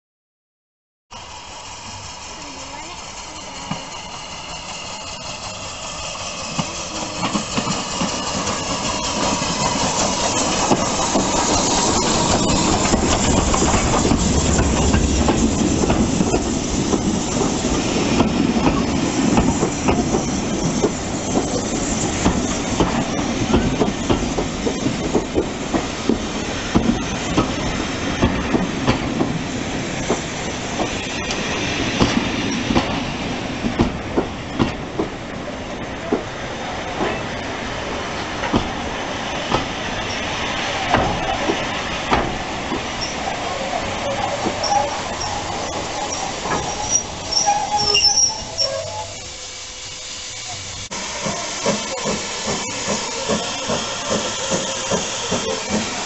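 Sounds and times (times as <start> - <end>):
steam train passing: 1.1 - 56.0
wheels clicking over rail joints: 6.5 - 31.4, 39.5 - 49.3.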